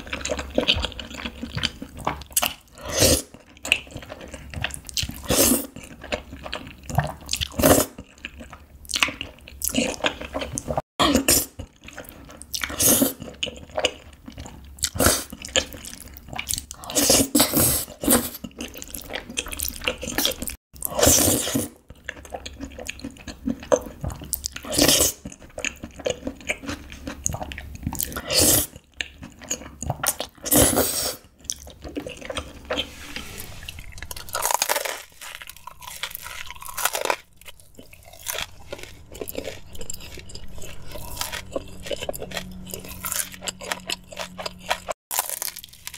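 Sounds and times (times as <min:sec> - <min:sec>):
chewing: 0:00.0 - 0:10.8, 0:11.4 - 0:32.9, 0:33.5 - 0:45.9
slurping noodles: 0:30.4 - 0:31.3.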